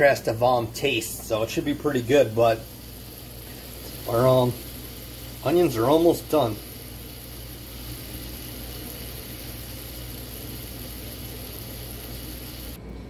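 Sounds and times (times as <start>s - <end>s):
steady low hum: 0.0s - 13.0s
onions sizzling in a frying pan: 2.5s - 12.8s.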